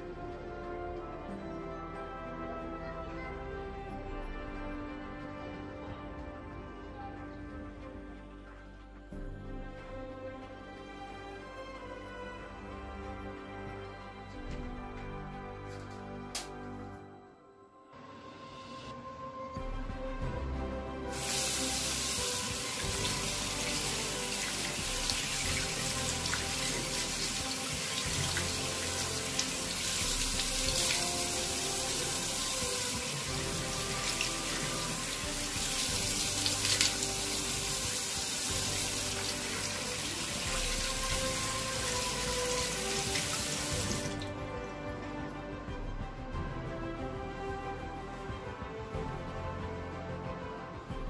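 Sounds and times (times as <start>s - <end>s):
tap water running into basin: 21.1s - 44.7s.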